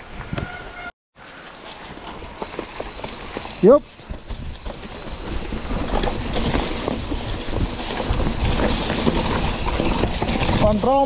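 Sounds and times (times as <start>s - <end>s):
bike tyre noise: 0.0s - 11.0s
bike rattling and clicking: 1.5s - 11.0s
wind rushing over microphone: 3.9s - 10.9s.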